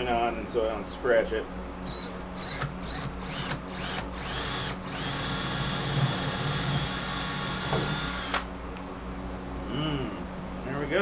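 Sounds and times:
cordless drill boring: 0:01.9 - 0:08.5.

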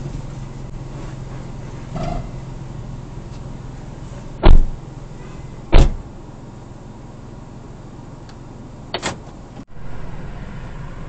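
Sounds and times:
car cabin hum: 0:00.0 - 0:11.0
car doors shutting: 0:04.3 - 0:04.8, 0:05.7 - 0:06.1, 0:08.3 - 0:09.7.

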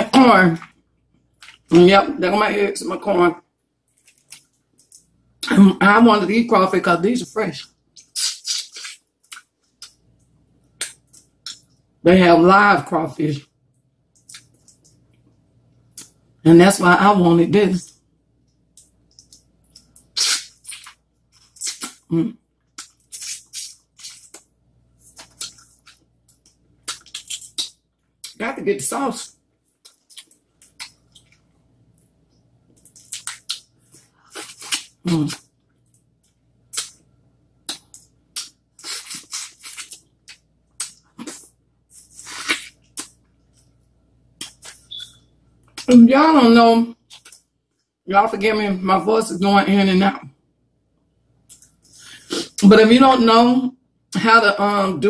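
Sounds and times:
wet slurps and sucks of eating: 0:08.0 - 0:09.0.

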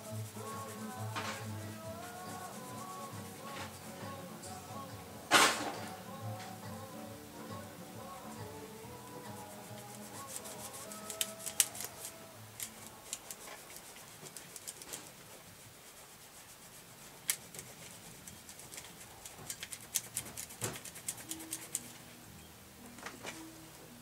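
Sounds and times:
faint music: 0:00.0 - 0:24.0.

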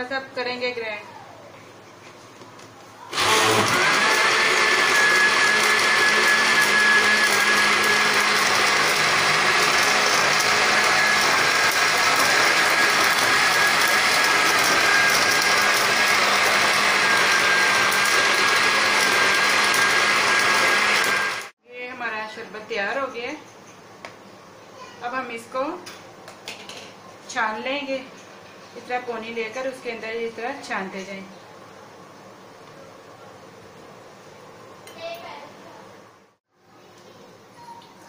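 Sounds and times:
electric blender motor whine: 0:03.1 - 0:21.6.

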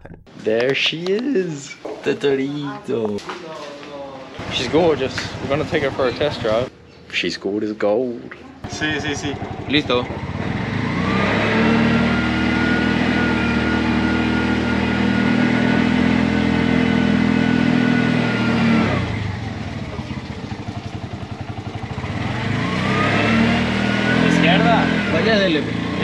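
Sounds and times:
auto-rickshaw engine revving: 0:04.4 - 0:07.0, 0:08.6 - 0:26.0.

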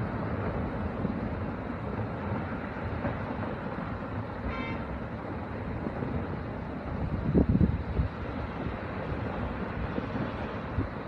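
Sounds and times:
short horn-like tone: 0:04.5 - 0:04.9.

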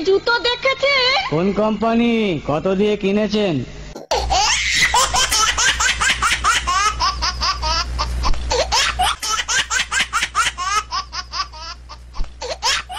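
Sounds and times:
high-pitched laughter: 0:04.0 - 0:12.0.

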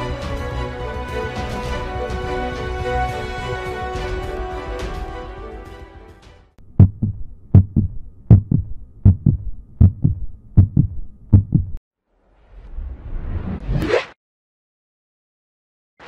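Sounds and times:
music: 0:00.0 - 0:06.6
heartbeat double thumps: 0:06.6 - 0:11.8.

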